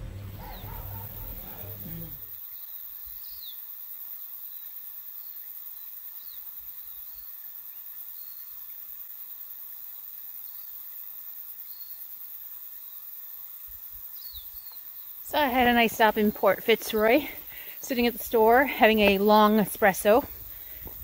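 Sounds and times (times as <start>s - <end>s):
bird chirps: 0.0s - 3.7s, 8.1s - 8.7s, 11.6s - 12.1s, 14.0s - 15.2s
high-pitched insect chorus: 0.0s - 21.0s.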